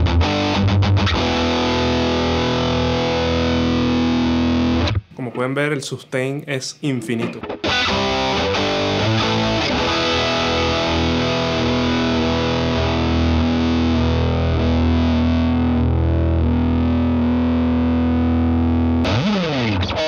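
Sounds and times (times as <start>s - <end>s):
distorted electric guitar: 0.0s - 5.2s, 7.1s - 20.0s.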